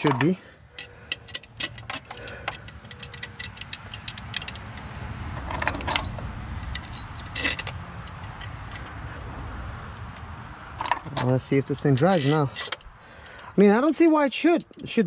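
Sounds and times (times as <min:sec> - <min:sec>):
metal parts clinking: 0:00.0 - 0:08.9, 0:10.8 - 0:12.9
metal scrape or rattle: 0:00.0 - 0:09.0, 0:10.8 - 0:12.8.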